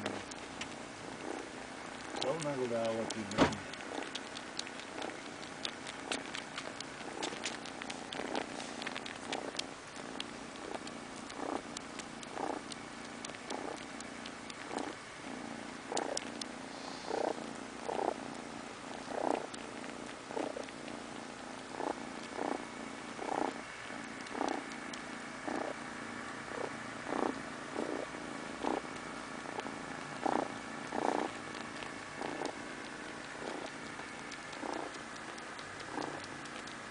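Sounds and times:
kitten purring: 0.0s - 36.9s
faint clicks: 28.6s - 36.9s.

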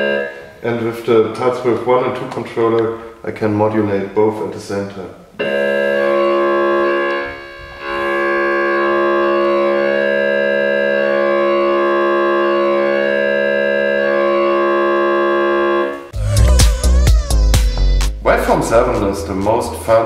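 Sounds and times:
synthesizer holding a steady note: 0.0s - 1.4s, 5.4s - 20.0s.

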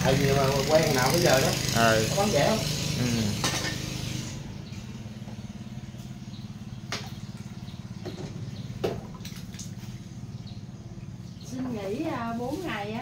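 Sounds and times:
small engine running: 0.0s - 11.4s.

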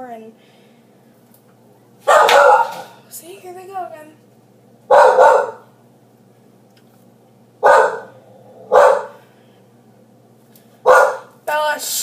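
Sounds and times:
dog barking: 2.0s - 3.0s, 4.9s - 5.7s, 7.6s - 9.2s, 10.8s - 11.4s.

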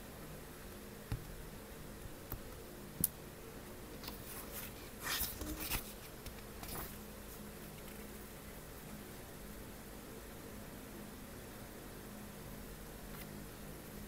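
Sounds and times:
book pages rustling: 4.0s - 8.1s.

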